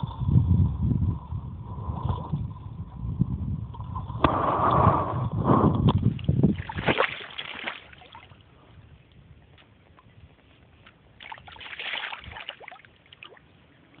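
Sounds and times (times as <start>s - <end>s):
water splashing: 6.1s - 8.4s, 11.2s - 13.6s.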